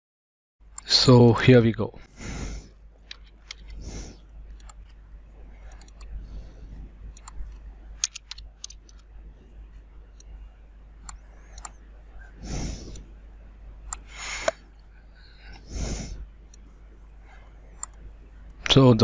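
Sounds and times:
low steady hum: 0.6s - 19.0s
short breaths: 2.1s - 2.8s, 3.5s - 4.2s, 12.2s - 13.0s, 14.0s - 16.2s
mouse and keyboard clicks: 3.0s - 3.8s, 4.5s - 6.1s, 7.1s - 9.1s, 11.0s - 11.8s, 13.9s - 14.7s.

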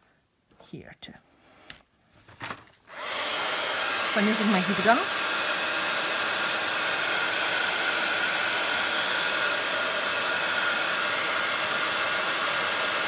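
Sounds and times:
heat gun blowing air: 2.9s - 13.0s.

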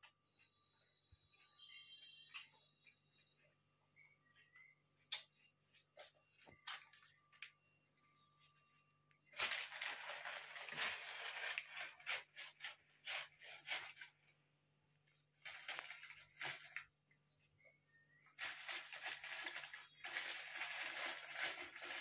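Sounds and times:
plastic bag crinkling: 9.3s - 14.4s, 15.3s - 17.0s, 18.3s - 22.0s.

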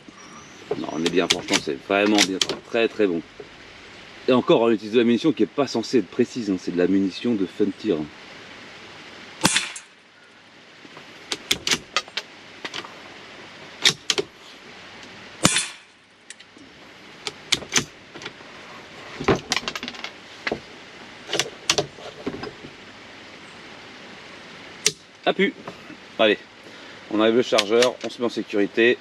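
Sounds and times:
rifle shots: 9.4s - 10.0s, 15.4s - 15.9s.

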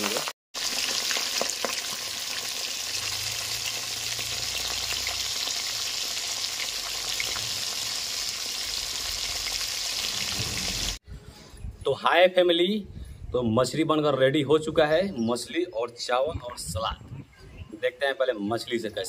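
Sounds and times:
fish frying in hot oil: 0.0s - 11.0s.

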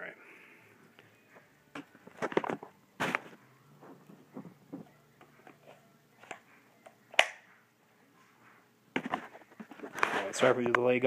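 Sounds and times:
holster sharp click: 7.1s - 7.4s.

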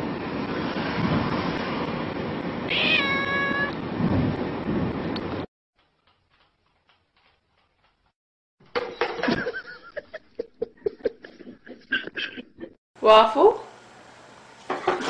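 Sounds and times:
cat meowing loudly: 2.7s - 3.8s.

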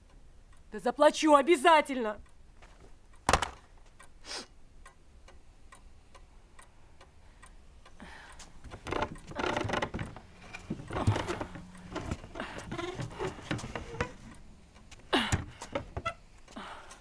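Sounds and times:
wall clock ticking: 0.0s - 17.0s
rustling movement: 8.6s - 16.0s.

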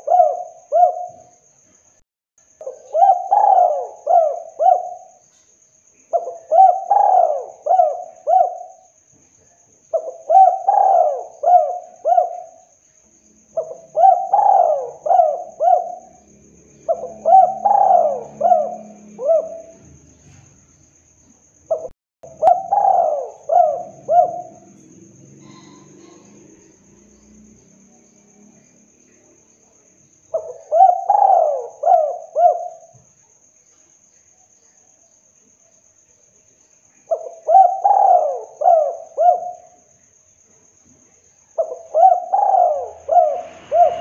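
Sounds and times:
dove cooing: 0.0s - 1.3s, 2.6s - 5.2s, 6.1s - 8.9s, 9.9s - 12.6s, 13.6s - 16.2s, 16.8s - 20.0s, 21.7s - 26.8s, 30.3s - 32.9s, 37.1s - 39.8s, 41.6s - 44.0s.

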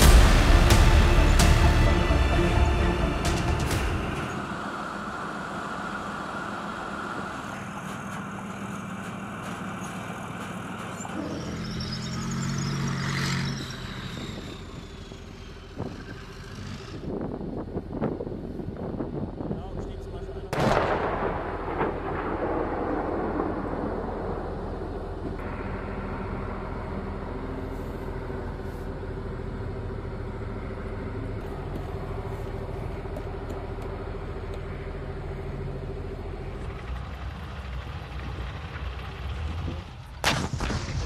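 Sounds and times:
sharp bang: 0.0s - 4.5s
tank engine and tracks: 0.0s - 41.0s
tank gun shot rumble: 20.5s - 25.4s, 40.2s - 41.0s.

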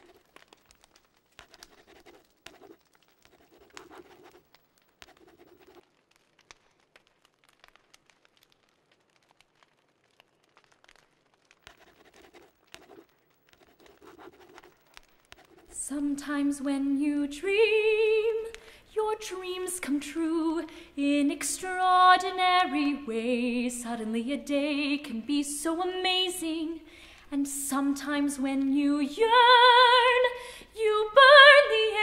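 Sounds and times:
pen scratching on paper: 1.4s - 4.4s, 5.0s - 5.8s, 11.6s - 15.8s.

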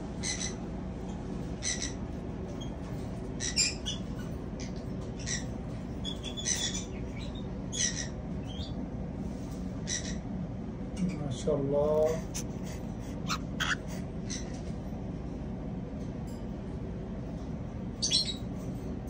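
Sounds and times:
steady low hum: 0.0s - 19.0s
cockatiels giving harsh calls: 13.2s - 14.6s.

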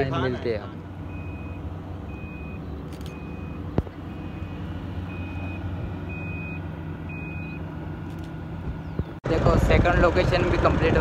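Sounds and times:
reversing alarm beeping: 1.1s - 7.6s.

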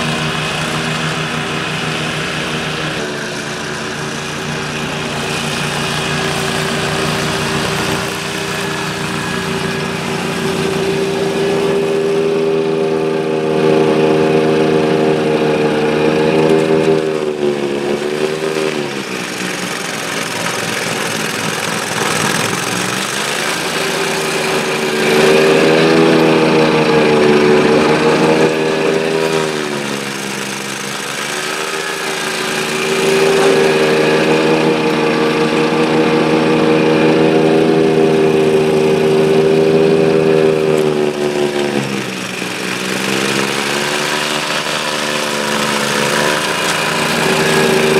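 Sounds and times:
mower engine running at high speed: 0.0s - 47.9s.

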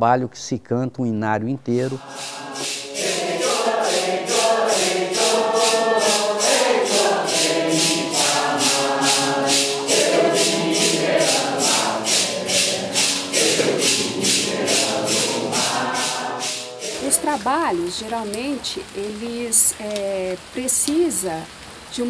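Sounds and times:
congregation singing a hymn: 1.8s - 17.5s
maracas shaking: 1.9s - 18.0s.

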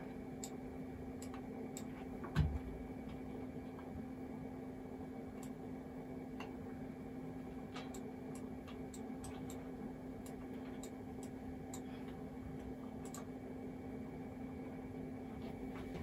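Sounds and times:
steady low hum: 0.0s - 16.0s
computer mouse clicking: 13.0s - 13.3s.

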